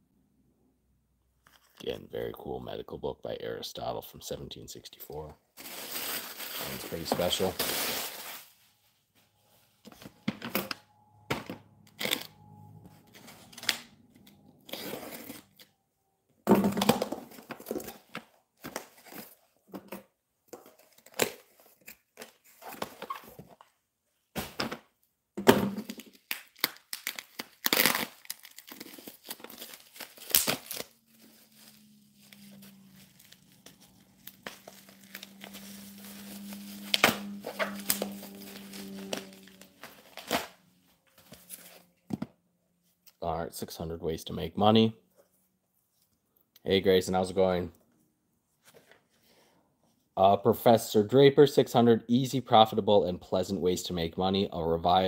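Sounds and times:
paper mailer ripping: 0:05.6 - 0:08.6, 0:25.9 - 0:40.6
plastic wrapping crinkling: 0:05.6 - 0:08.7, 0:25.8 - 0:42.0.

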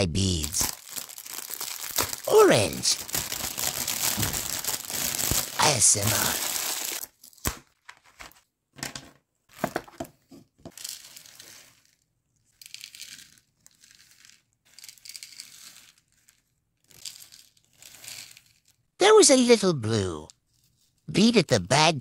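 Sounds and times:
plastic bag crinkling: 0:00.5 - 0:07.4, 0:10.7 - 0:12.0
beads pouring into plastic box: 0:00.6 - 0:07.1, 0:10.7 - 0:18.8.

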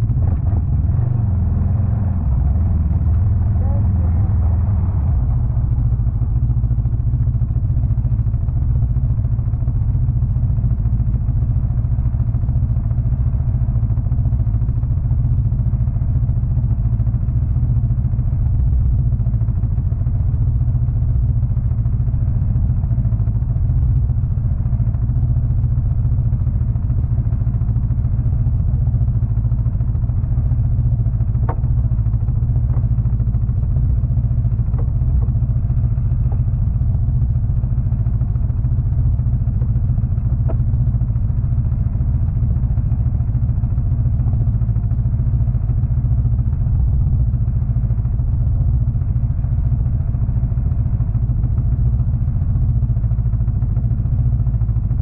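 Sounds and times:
snowmobile engine running: 0:00.0 - 0:10.9, 0:20.9 - 0:44.7.

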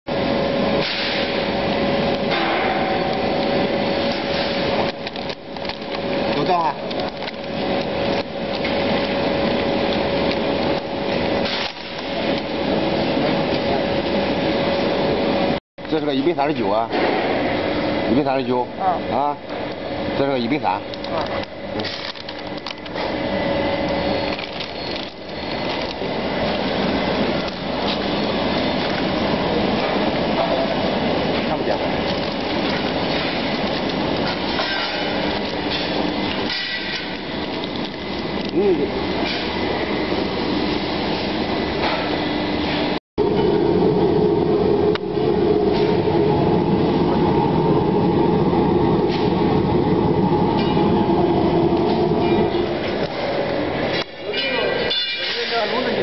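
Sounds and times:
roasting machine whirring: 0:00.1 - 0:56.0
plastic bag crinkling: 0:21.1 - 0:22.9, 0:24.2 - 0:26.6, 0:31.9 - 0:34.5.

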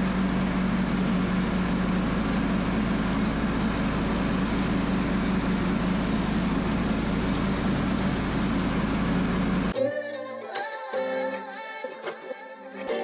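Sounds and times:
tractor engine running: 0:00.0 - 0:09.8
guitar music: 0:09.8 - 0:13.0.

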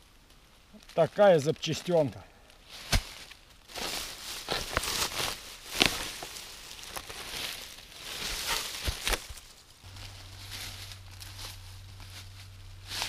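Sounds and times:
footsteps through vegetation: 0:00.9 - 0:13.0
low steady hum: 0:03.9 - 0:13.0.

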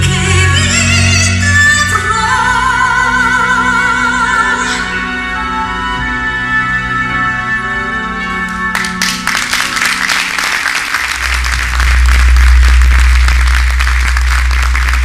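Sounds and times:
audience applause: 0:08.7 - 0:15.0
deep low hum: 0:09.3 - 0:15.0.

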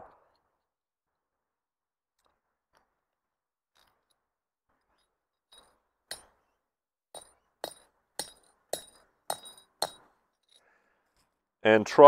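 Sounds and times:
hammer striking metal bolt: 0:07.2 - 0:10.1.

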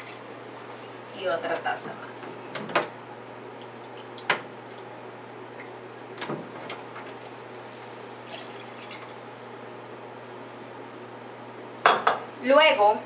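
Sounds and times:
water splashing into a pot: 0:08.2 - 0:09.2.

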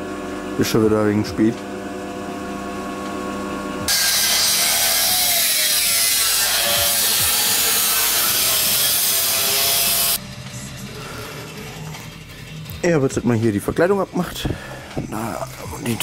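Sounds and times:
power grinder on metal: 0:03.8 - 0:10.2.

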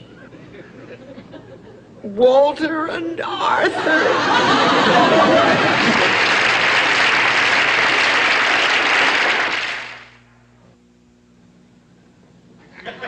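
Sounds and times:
faint low hum: 0:00.0 - 0:13.0
studio audience applauding: 0:04.4 - 0:10.2.

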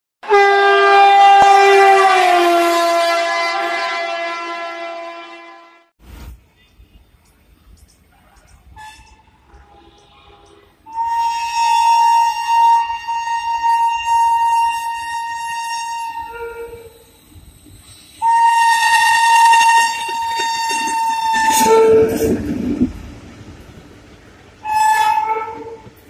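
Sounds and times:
train horn blasts: 0:00.2 - 0:05.9, 0:08.8 - 0:17.2, 0:18.2 - 0:22.7, 0:24.6 - 0:26.0
passing train: 0:00.2 - 0:26.0.

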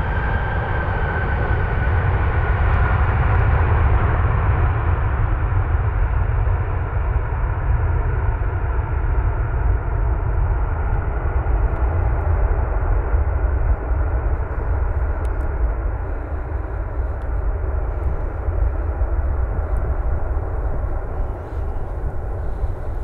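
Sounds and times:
jet engine rumble: 0:00.0 - 0:23.0.

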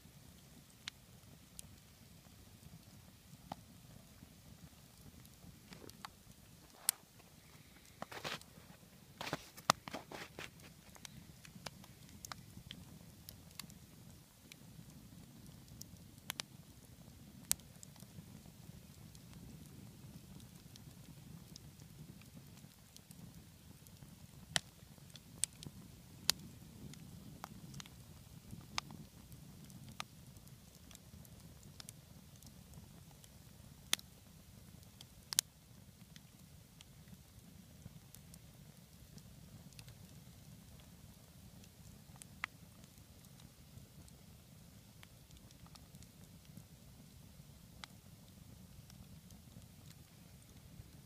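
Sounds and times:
campfire crackling: 0:00.0 - 0:51.0
fire pops: 0:00.6 - 0:51.0.

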